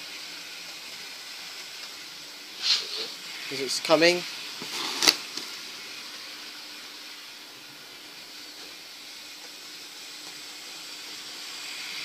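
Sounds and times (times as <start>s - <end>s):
model train running on track: 7.7s - 12.0s.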